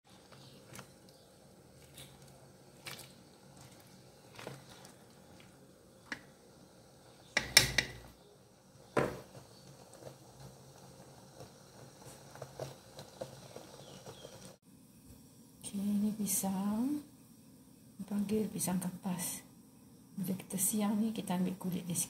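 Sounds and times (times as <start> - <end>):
ladle clicking in a pot: 7.4 - 8.1.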